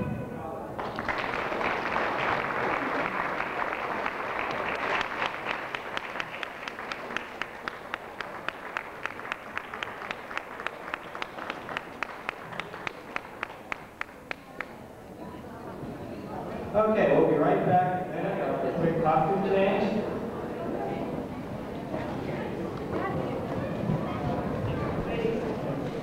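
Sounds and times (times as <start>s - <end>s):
audience applause: 0.8s - 14.8s
rhythmic clapping: 0.8s - 14.8s.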